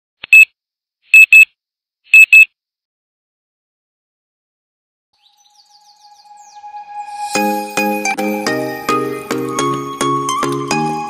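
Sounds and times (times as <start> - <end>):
alarm clock double beeps: 1.2 - 1.5, 2.2 - 2.5
light music: 5.4 - 11.0.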